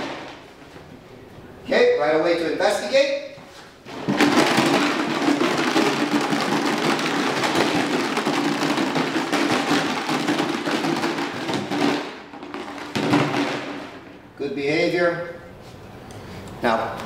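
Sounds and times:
plastic jug rattling: 3.9 - 14.1.

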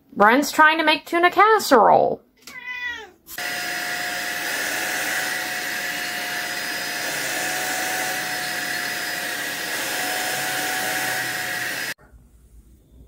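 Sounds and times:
vacuum cleaner running: 3.4 - 12.0.

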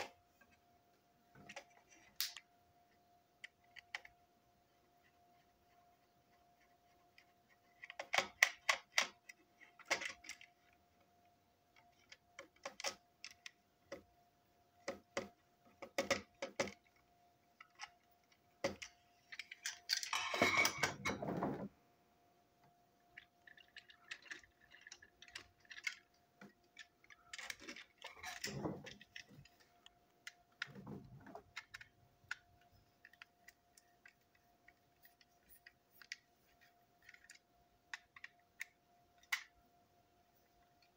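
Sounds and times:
plastic toy parts clicking: 1.4 - 2.5, 3.4 - 4.2, 6.6 - 10.8, 11.7 - 14.1, 14.8 - 20.2, 23.0 - 39.6.

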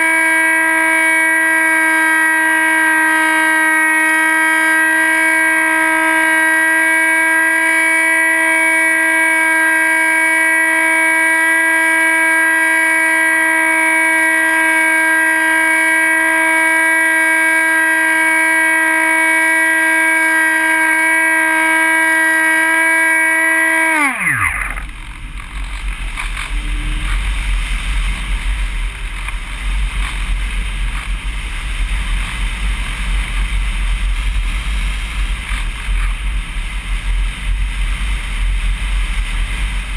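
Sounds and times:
electric motor and propeller whine: 0.0 - 39.9
wind rushing over camera: 24.2 - 39.9.

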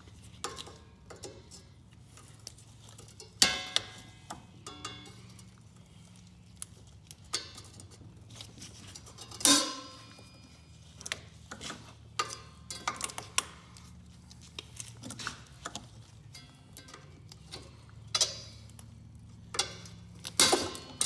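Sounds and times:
ringing metal clank: 4.6 - 5.4, 9.2 - 10.7.

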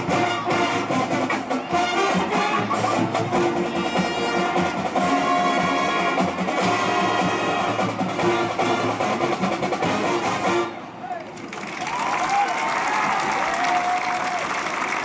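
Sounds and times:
marching band playing: 0.0 - 11.0.

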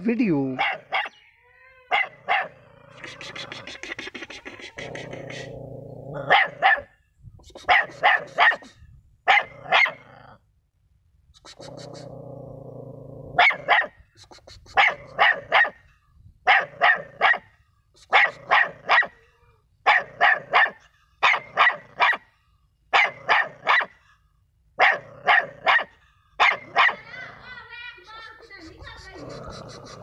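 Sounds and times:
puppy barking: 0.6 - 1.2, 1.9 - 2.6, 6.3 - 6.9, 7.7 - 8.7, 9.3 - 10.0, 13.4 - 14.0, 14.8 - 15.8, 16.5 - 17.5, 18.1 - 19.2, 19.8 - 22.3, 22.9 - 24.0, 24.8 - 27.1.

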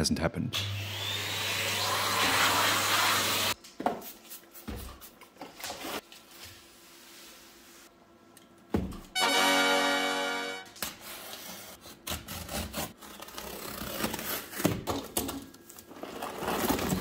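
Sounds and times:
steady pitched hum: 9.1 - 10.7.

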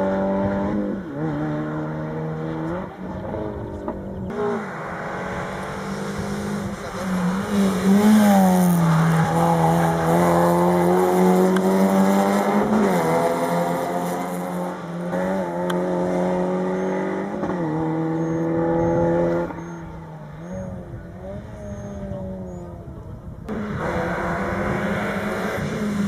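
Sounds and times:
rally car engine at high revs: 0.0 - 22.7, 23.5 - 26.0.

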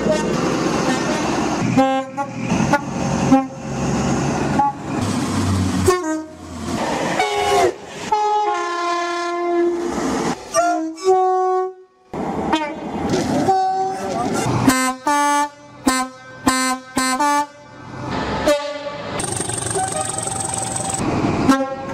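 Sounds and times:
passing train rumble: 0.0 - 10.9, 12.1 - 14.7
train horn blasts: 7.2 - 9.8
two-tone train horn: 7.2 - 9.8, 10.6 - 11.9, 21.5 - 21.9.

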